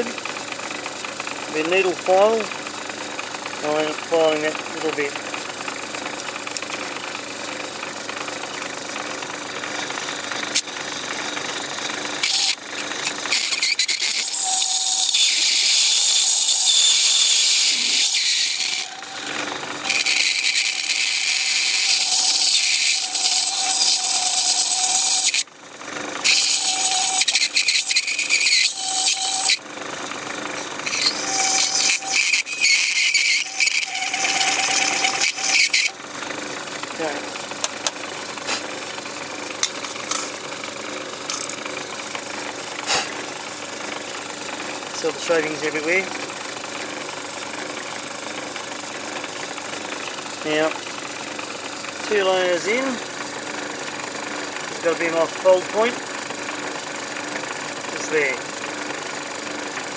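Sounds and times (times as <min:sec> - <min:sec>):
lathe motor humming: 0:00.0 - 0:59.9
file scraping metal: 0:01.4 - 0:02.6, 0:08.1 - 0:25.5, 0:26.2 - 0:36.0, 0:36.6 - 0:38.9, 0:42.7 - 0:46.3.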